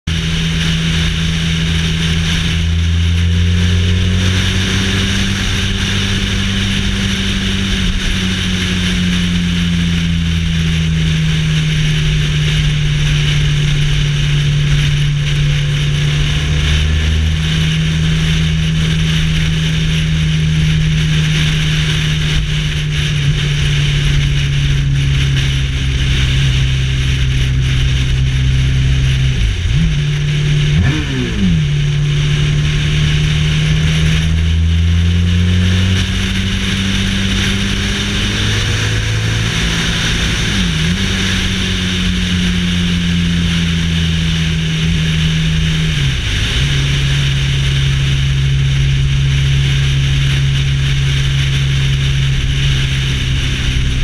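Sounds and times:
motorcycle engine cruising: 0.0s - 54.0s
wind noise: 0.1s - 54.0s.

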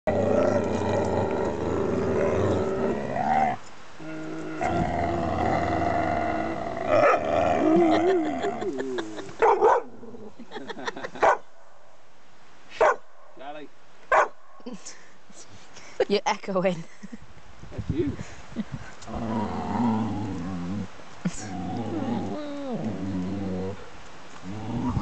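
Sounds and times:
dog growling: 0.1s - 10.4s, 19.1s - 23.8s, 24.4s - 25.0s
dog barking: 9.4s - 9.9s, 11.2s - 11.4s, 12.8s - 13.0s, 14.1s - 14.4s.

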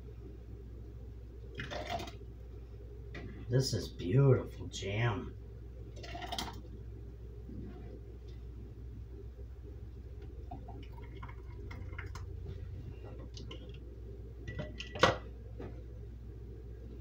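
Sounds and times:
steady low hum: 0.0s - 17.0s
jam dripping and pouring: 6.0s - 6.7s, 10.2s - 13.8s.

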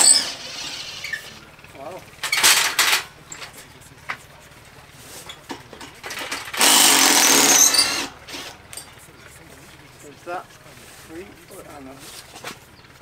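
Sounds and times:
handheld power tool running: 0.0s - 1.4s, 6.2s - 8.6s.

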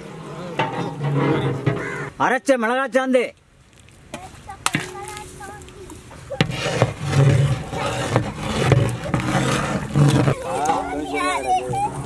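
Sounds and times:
ladle stirring a pot: 0.5s - 2.2s, 6.0s - 10.8s
metal ladle scraping a steel plate: 0.5s - 2.2s, 6.3s - 10.4s.

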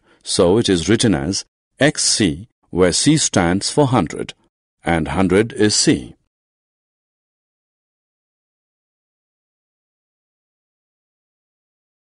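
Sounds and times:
narrator speaking: 0.2s - 6.3s.

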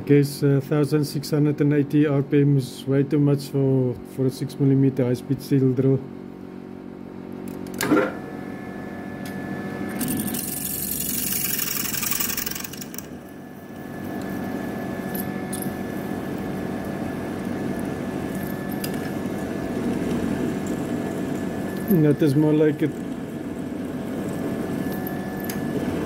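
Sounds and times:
mill spindle running: 7.5s - 26.0s
drill bit cutting metal: 10.0s - 13.2s.

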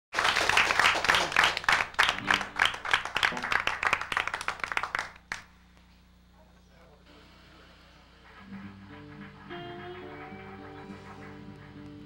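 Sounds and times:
small audience clapping: 0.1s - 5.5s, 8.2s - 12.0s.

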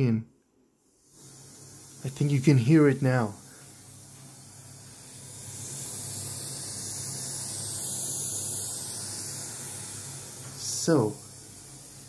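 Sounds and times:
speaker white-noise hiss: 0.0s - 12.0s.

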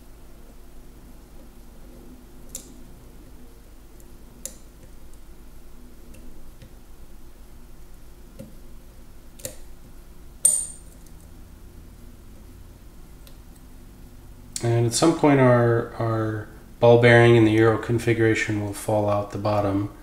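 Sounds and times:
sharp ringing metal click: 10.4s - 11.0s.

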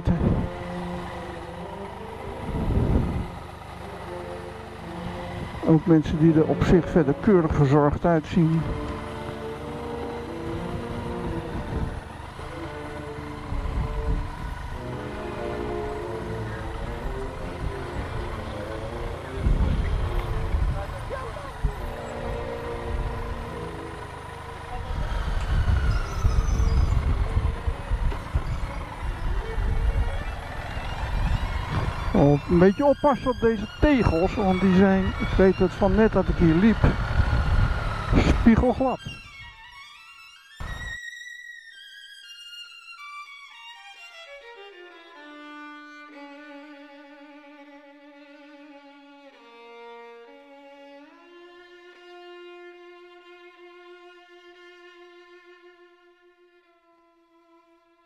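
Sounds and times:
motorcycle engine rumble: 0.0s - 39.6s, 40.6s - 40.9s
road noise: 0.0s - 41.0s, 43.5s - 56.9s
slow violin melody: 0.0s - 58.0s.

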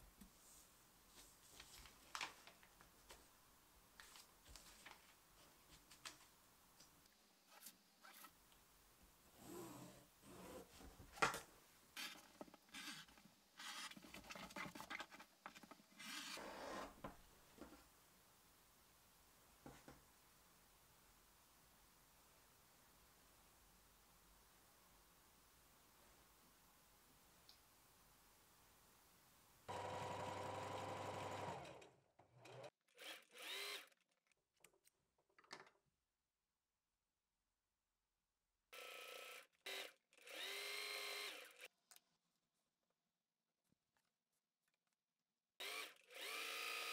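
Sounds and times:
fabric rustling: 0.2s - 6.4s
rotary cutter scratching fabric: 12.0s - 14.0s, 16.0s - 16.9s, 31.2s - 34.0s
sewing machine stitching: 29.7s - 33.9s.

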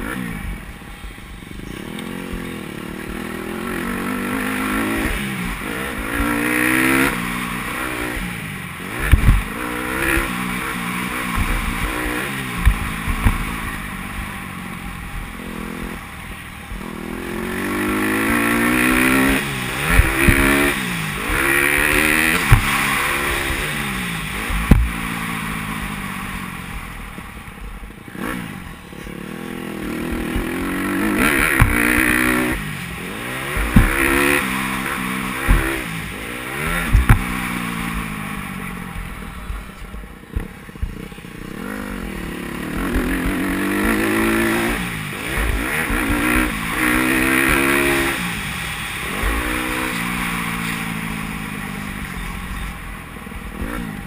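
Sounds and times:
dirt bike engine revving: 0.0s - 54.0s
sharp knocks: 19.8s - 22.9s, 24.4s - 25.0s, 31.3s - 32.1s, 33.5s - 34.4s, 35.4s - 35.8s, 36.7s - 37.5s.

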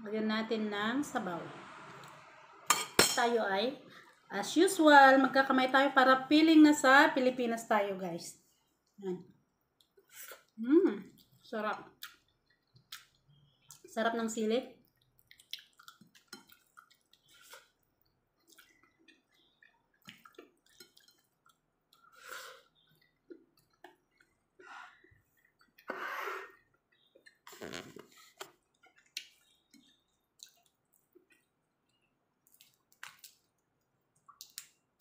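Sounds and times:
chewing: 14.8s - 25.9s, 26.5s - 34.8s
lip smacks: 34.2s - 34.8s
wet mouth clicks: 34.2s - 34.8s.

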